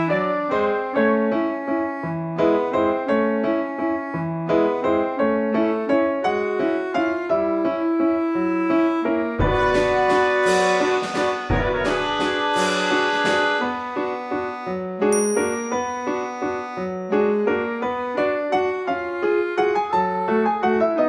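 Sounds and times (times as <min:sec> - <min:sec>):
piano melody: 0:00.0 - 0:21.0.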